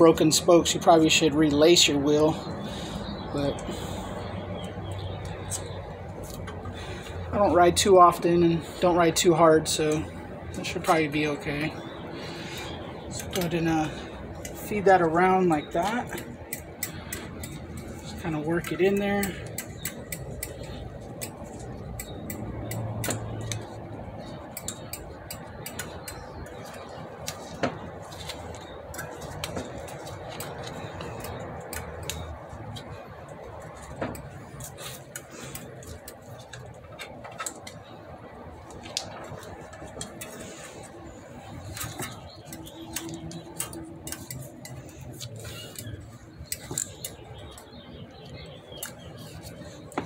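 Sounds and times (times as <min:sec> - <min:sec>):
bicycle spokes clinking: 0:13.1 - 0:50.0.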